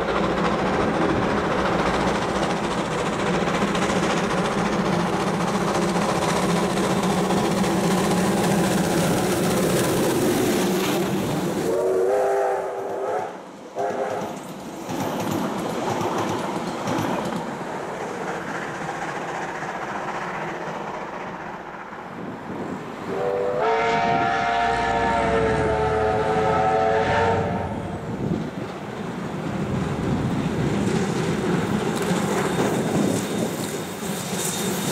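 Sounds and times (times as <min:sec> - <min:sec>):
wheels clacking on rail joints: 0:00.0 - 0:11.7, 0:13.8 - 0:22.2, 0:28.2 - 0:34.9
steam locomotive passing: 0:00.0 - 0:34.9
train whistle: 0:11.6 - 0:14.4, 0:23.1 - 0:28.0.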